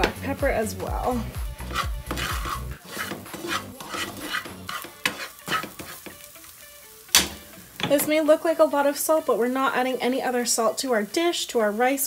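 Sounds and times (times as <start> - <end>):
wooden spoon scraping frying pan: 0.9 - 6.4.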